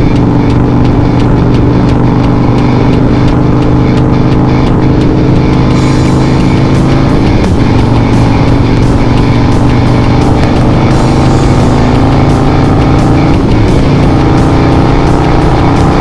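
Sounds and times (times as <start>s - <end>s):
motorcycle engine running: 0.0s - 16.0s
music playing: 0.0s - 16.0s.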